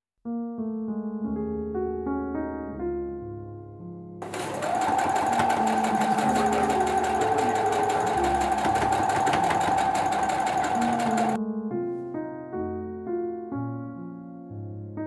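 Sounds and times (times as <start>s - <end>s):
sewing machine stitching: 4.2s - 11.4s.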